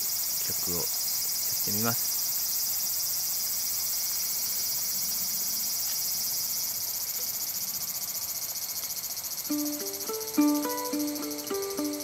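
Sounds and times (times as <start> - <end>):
insects chorus pulsing: 0.0 - 12.0
ukulele plucking: 9.5 - 12.0.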